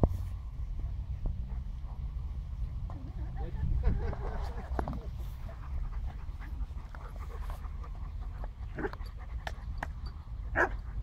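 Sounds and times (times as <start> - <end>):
dogs play-fighting vocal noises: 5.4 - 11.0.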